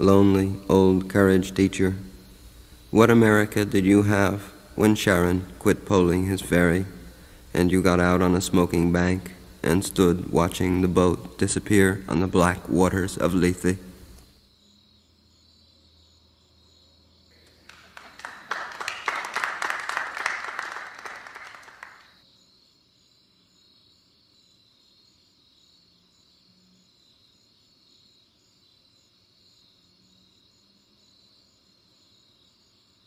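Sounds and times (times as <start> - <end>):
crickets chirping: 0.0 - 33.0
dense clapping-like crackle: 17.4 - 22.2.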